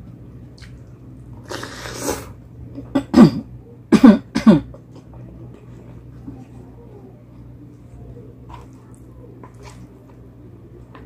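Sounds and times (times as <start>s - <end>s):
person coughing: 2.8s - 4.8s.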